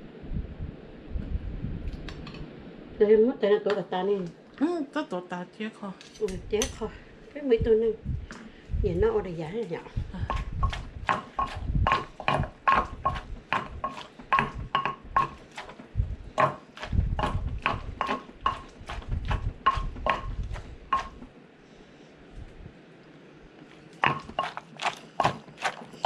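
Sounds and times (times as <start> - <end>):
pestle pounding in a mortar: 10.0 - 21.3, 24.0 - 26.0.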